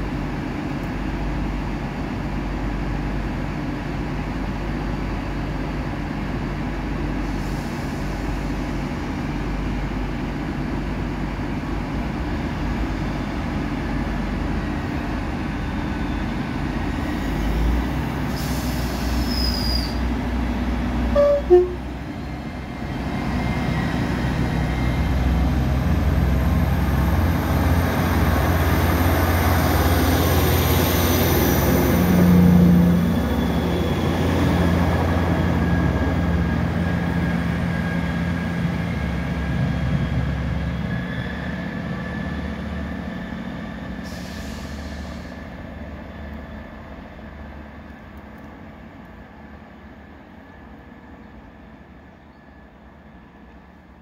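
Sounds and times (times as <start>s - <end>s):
diesel train engine rumble: 0.0s - 54.0s
train passing with rising whine: 0.0s - 54.0s
train horn toot: 21.1s - 22.0s.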